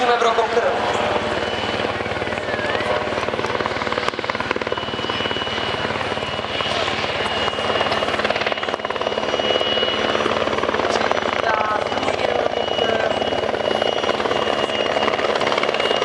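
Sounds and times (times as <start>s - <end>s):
helicopter rotor blades chopping: 0.0s - 16.0s
high turbine whine: 0.0s - 16.0s.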